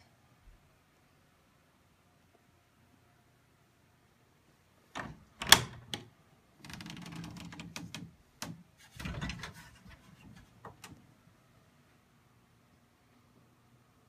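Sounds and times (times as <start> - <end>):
door latch clacks: 5.0 - 6.1
wooden door scraping: 6.6 - 10.9.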